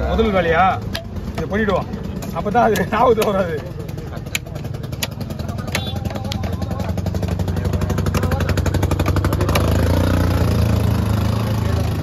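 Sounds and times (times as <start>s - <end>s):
vehicle engine running: 0.0s - 12.0s
cleaver striking chopping block: 2.2s - 3.6s, 4.2s - 7.4s.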